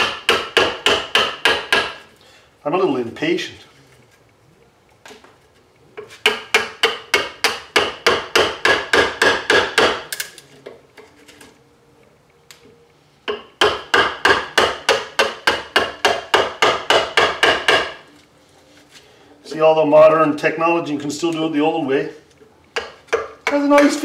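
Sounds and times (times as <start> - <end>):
hammer tapping chisel into wood: 0.0 - 2.0, 6.0 - 10.3, 13.2 - 18.0, 22.8 - 24.0.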